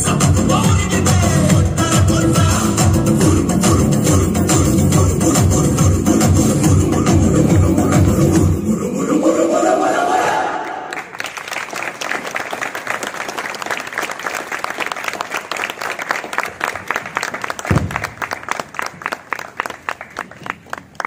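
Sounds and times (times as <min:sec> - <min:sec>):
dance music: 0:00.0 - 0:10.6
audience applauding: 0:10.6 - 0:21.0
low thud: 0:17.7 - 0:18.2.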